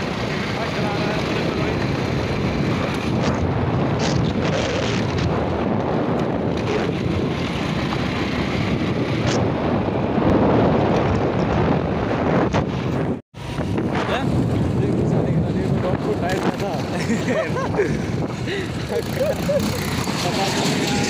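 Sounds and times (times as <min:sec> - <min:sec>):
motorcycle engine running: 0:00.0 - 0:11.8, 0:18.1 - 0:21.0
wind buffeting microphone: 0:00.0 - 0:21.0.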